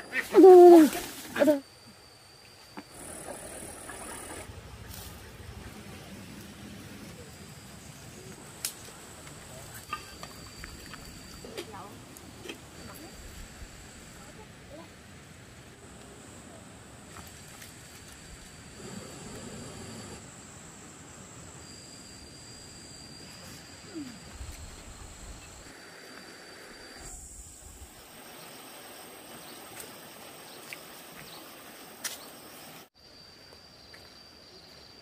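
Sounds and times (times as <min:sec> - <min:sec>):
insects trilling: 0:00.0 - 0:35.0.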